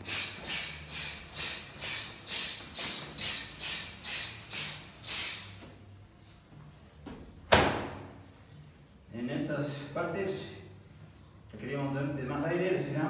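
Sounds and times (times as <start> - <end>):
sharp hissing exhalations: 0.0 - 5.6
sharp smack: 7.5 - 8.0.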